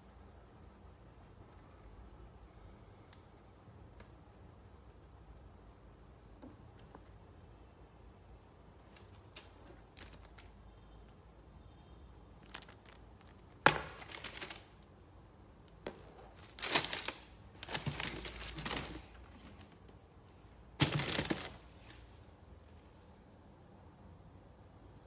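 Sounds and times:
rustling and crinkling cardboard: 0:08.8 - 0:10.6, 0:12.4 - 0:14.8, 0:15.9 - 0:20.0, 0:20.7 - 0:22.2.

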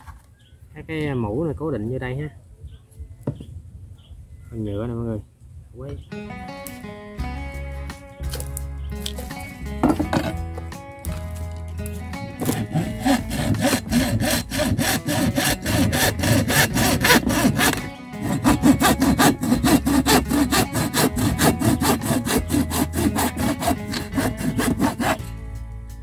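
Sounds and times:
hand hacksaw cutting stick: 0:12.4 - 0:25.2.

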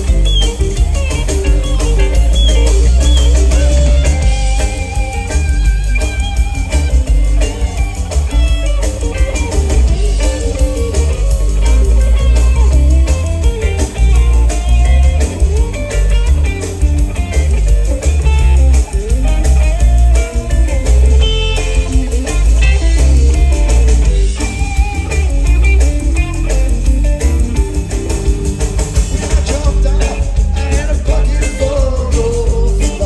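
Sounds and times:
boomy bass: 0:00.0 - 0:33.0
electric guitar lead with bends: 0:00.0 - 0:33.0
live rock band playing: 0:00.0 - 0:33.0.

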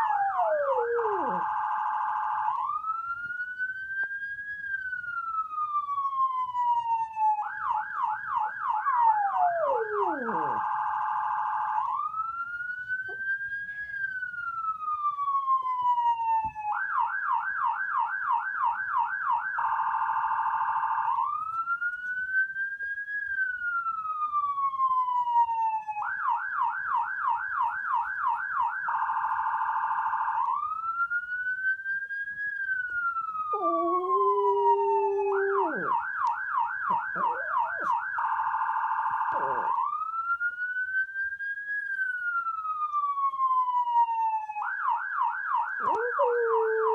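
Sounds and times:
electronic emergency siren: 0:00.0 - 0:46.9
lower held tone: 0:33.5 - 0:36.0.

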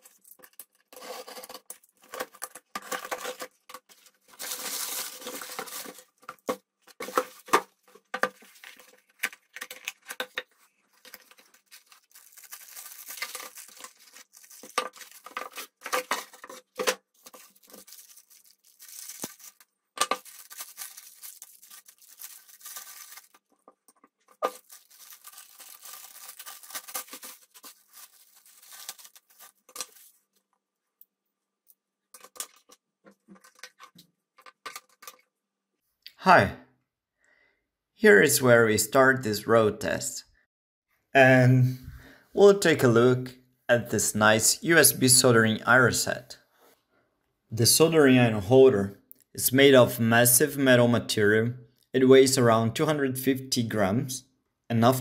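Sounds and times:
packing rustling and crinkling: 0:00.0 - 0:30.3
tape tearing: 0:11.1 - 0:23.5, 0:24.3 - 0:30.1.

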